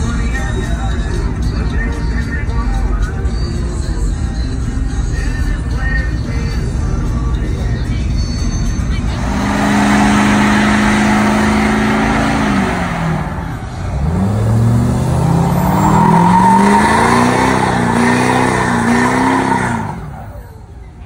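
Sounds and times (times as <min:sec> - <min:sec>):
truck engine revving: 0:03.0 - 0:21.0
tyres squealing: 0:12.6 - 0:20.6.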